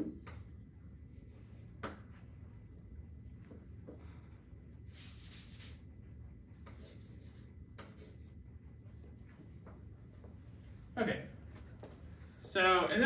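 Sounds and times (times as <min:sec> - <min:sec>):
chalk scratching on chalkboard: 0:04.8 - 0:05.9, 0:06.7 - 0:08.4, 0:11.1 - 0:13.0.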